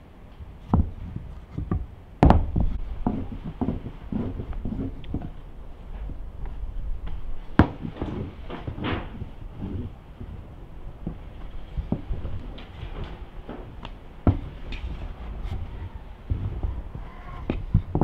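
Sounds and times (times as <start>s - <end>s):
rolling pin knocking on wooden board: 1.6s - 5.3s, 14.2s - 14.6s.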